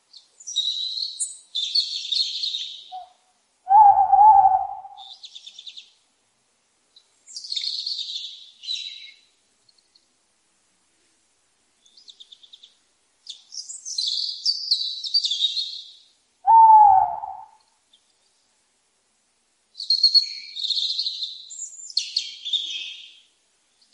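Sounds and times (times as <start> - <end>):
owl screeches: 3.7 - 5.0, 16.5 - 17.6
low owl hoot: 3.7 - 5.2, 16.4 - 17.6.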